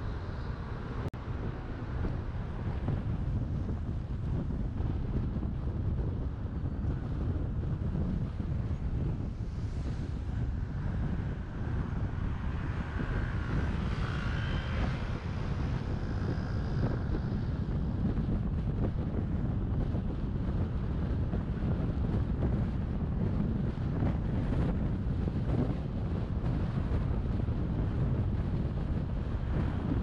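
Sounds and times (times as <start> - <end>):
car wind and road noise: 0.0 - 30.0.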